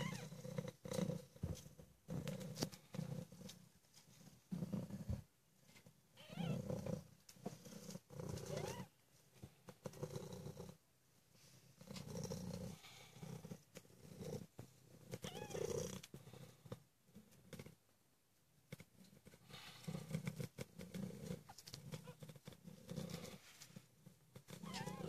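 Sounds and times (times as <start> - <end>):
cat purring: 0.0 - 10.8, 11.4 - 17.9, 18.6 - 25.0.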